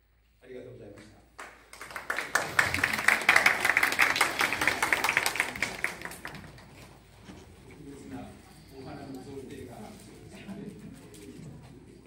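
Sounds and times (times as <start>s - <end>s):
audience applauding: 1.4s - 6.9s.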